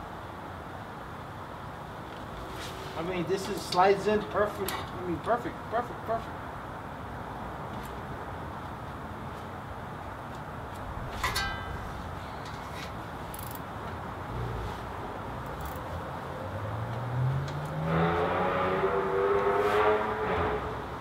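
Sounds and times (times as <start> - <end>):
vehicle engine accelerating: 16.4 - 21.0.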